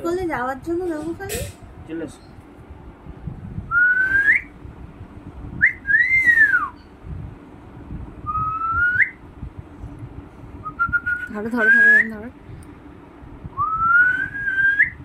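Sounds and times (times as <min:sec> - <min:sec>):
person whistling: 0:03.7 - 0:04.5, 0:05.6 - 0:06.8, 0:13.6 - 0:15.0.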